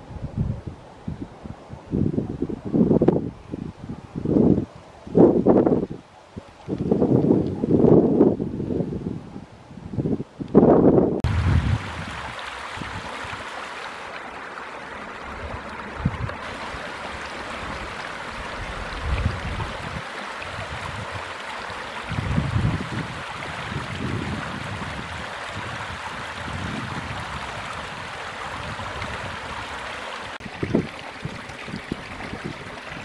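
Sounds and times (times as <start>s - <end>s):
wind rumble on microphone: 0.0s - 13.5s, 14.9s - 33.0s
creek water rushing over stones: 11.2s - 33.0s.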